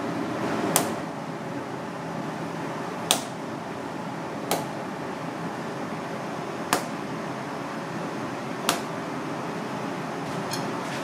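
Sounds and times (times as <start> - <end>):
steady background noise: 0.0 - 11.0
meat slapping on cutting board: 6.7 - 7.0, 8.7 - 8.9.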